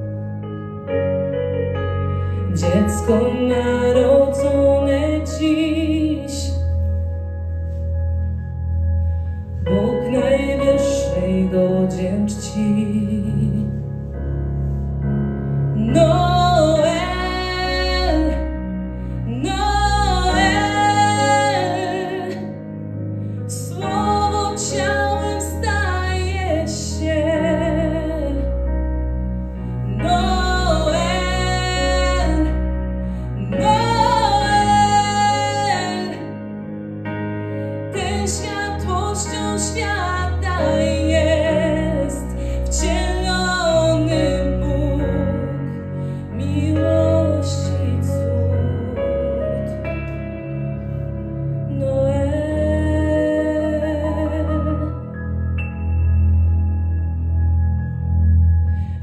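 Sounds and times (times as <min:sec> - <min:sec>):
woman singing into microphone: 0:02.5 - 0:06.6, 0:09.7 - 0:13.8, 0:15.8 - 0:18.6, 0:19.3 - 0:22.6, 0:23.5 - 0:28.5, 0:29.9 - 0:32.7, 0:33.4 - 0:36.3, 0:37.9 - 0:49.8, 0:51.7 - 0:55.0.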